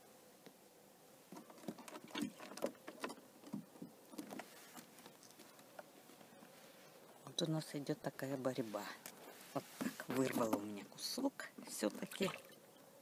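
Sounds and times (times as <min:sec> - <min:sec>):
paws tapping on wooden boards: 0:01.3 - 0:05.9.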